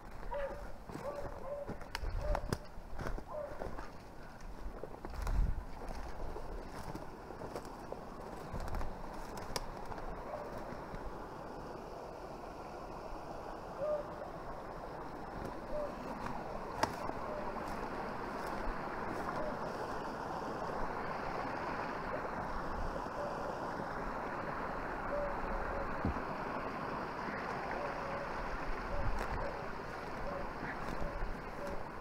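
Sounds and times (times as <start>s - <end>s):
creek water rushing over rocks: 0.0s - 32.0s.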